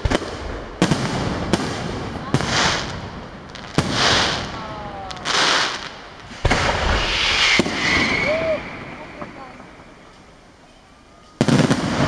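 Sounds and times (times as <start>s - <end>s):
hissing of burning stars: 0.0s - 12.0s
firework shells bursting: 2.4s - 10.6s.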